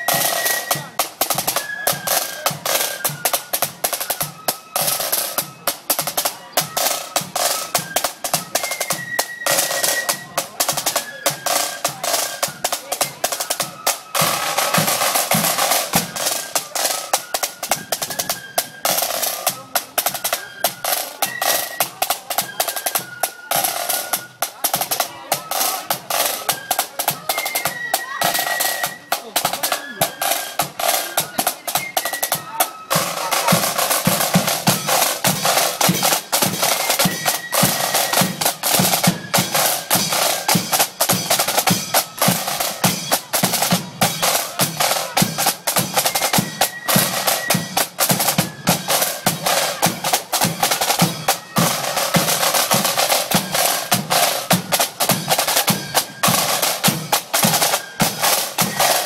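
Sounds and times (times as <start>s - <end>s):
snare drum rolls: 22.4s - 59.0s.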